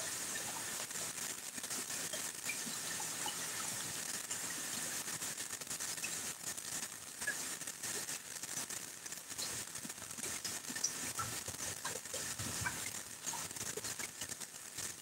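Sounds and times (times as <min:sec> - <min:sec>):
rain falling through leaves: 0:00.0 - 0:15.0.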